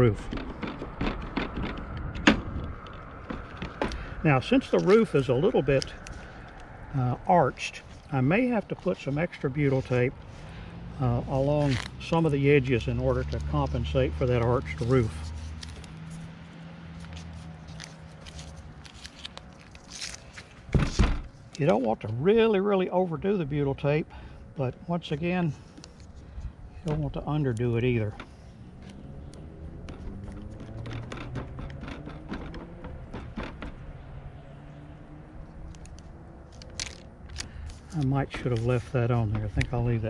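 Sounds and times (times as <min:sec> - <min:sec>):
tape and paper crackling: 0:04.5 - 0:06.8, 0:11.1 - 0:20.8, 0:35.5 - 0:40.0
plastic clicks and tape crinkles: 0:17.0 - 0:20.6, 0:35.6 - 0:39.8
thump: 0:20.7 - 0:21.3.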